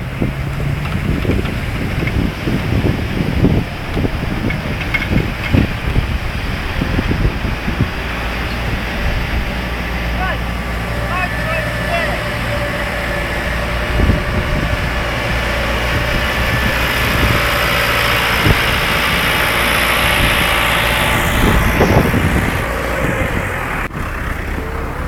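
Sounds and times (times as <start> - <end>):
wind hiss: 0.0 - 24.8
vehicle engine idling low: 0.0 - 25.0.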